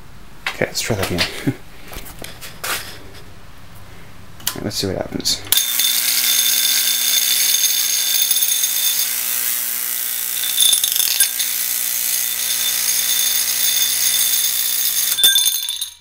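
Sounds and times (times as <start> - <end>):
electromagnet humming: 5.3 - 16.0
metal platter rattling against nail: 5.6 - 9.2, 10.4 - 16.0.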